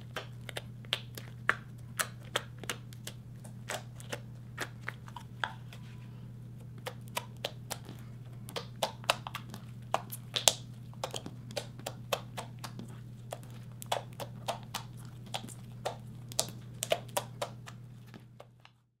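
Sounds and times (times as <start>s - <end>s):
low steady hum: 0.0s - 19.0s
sticky slime clicks and pops: 8.5s - 17.7s.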